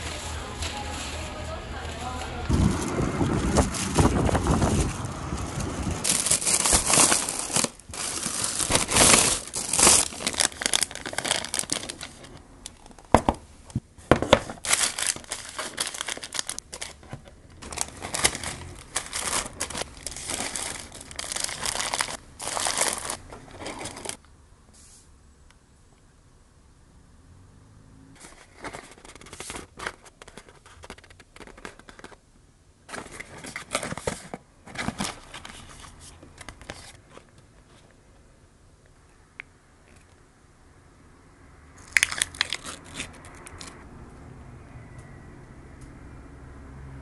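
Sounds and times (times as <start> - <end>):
plastic bag and wrappers crinkling: 0.0 - 13.3, 14.0 - 24.2, 28.2 - 32.2, 32.9 - 37.4, 41.8 - 43.8.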